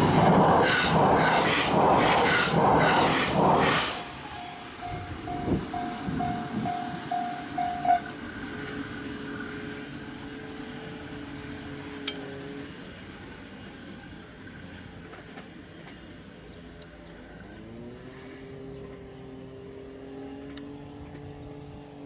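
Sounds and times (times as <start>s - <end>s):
train wheel clacks: 0.0s - 8.8s
electric train running noise: 0.0s - 18.2s
level-crossing warning bell ringing: 4.2s - 8.8s.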